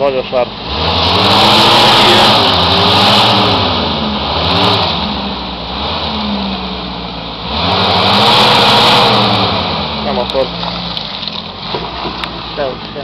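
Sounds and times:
suv engine revving: 0:00.0 - 0:13.0
steady rushing noise: 0:00.6 - 0:06.4.

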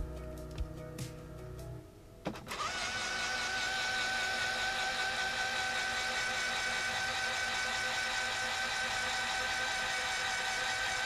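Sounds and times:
electric motor whining: 0:02.5 - 0:11.0.

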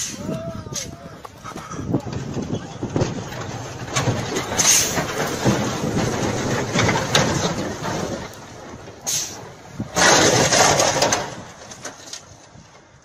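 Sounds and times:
truck engine running: 0:00.0 - 0:13.0
loud rushing noise: 0:01.9 - 0:11.5.

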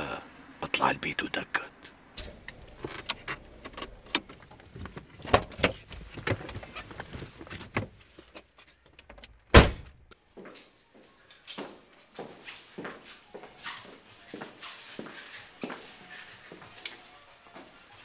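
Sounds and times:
clicks and knocks: 0:02.2 - 0:06.7
keys jangling: 0:02.2 - 0:08.4
loud door thud: 0:09.5 - 0:10.0.

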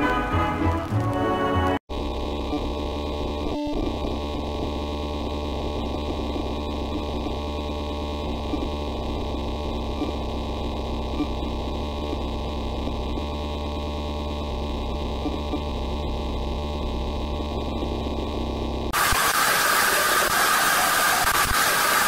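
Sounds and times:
muffled electrical hum: 0:01.9 - 0:19.2.

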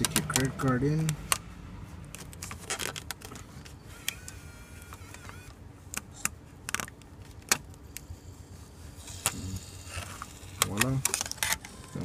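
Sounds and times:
plastic card clicking and scraping: 0:00.0 - 0:08.1, 0:09.1 - 0:12.0.

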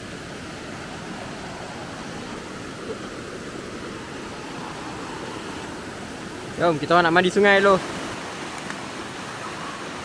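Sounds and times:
river rushing over rapids: 0:00.0 - 0:10.0.

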